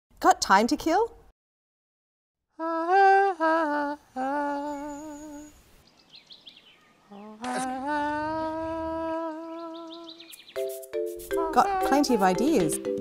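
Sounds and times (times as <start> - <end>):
person humming: 2.6 - 5.6, 7.1 - 10.3, 11.3 - 12.9.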